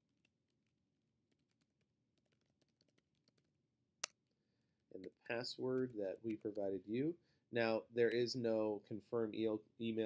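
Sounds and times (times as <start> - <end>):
keyboard typing: 0.0 - 3.5.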